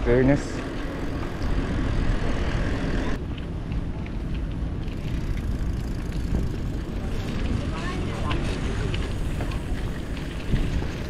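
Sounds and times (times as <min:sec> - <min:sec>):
wind buffeting microphone: 0:00.6 - 0:11.0
tyre rumble on pavement: 0:05.8 - 0:11.0.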